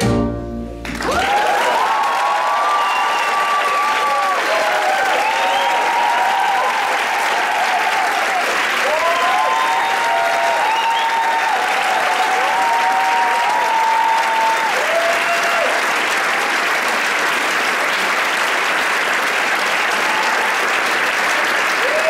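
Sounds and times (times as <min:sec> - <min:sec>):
audience applauding: 0:00.8 - 0:22.0
crowd calling out: 0:01.0 - 0:15.9.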